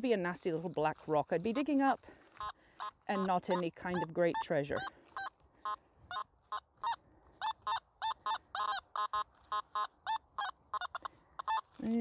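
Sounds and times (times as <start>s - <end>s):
metal detector beeping: 2.4s - 6.2s.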